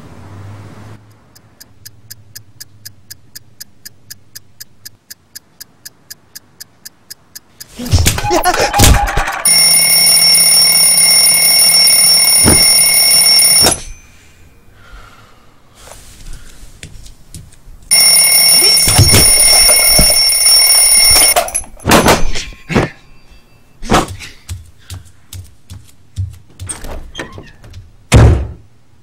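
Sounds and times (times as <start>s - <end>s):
alarm clock ringing: 9.4s - 14.1s, 17.9s - 22.0s
knocks: 27.7s - 28.7s.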